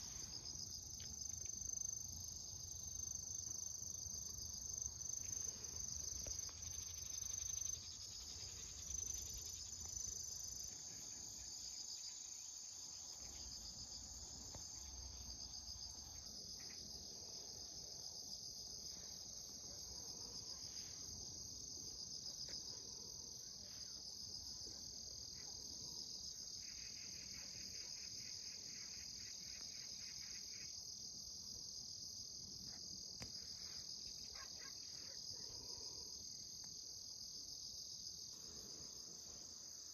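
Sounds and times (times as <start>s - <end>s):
crickets trilling: 0.0s - 22.6s.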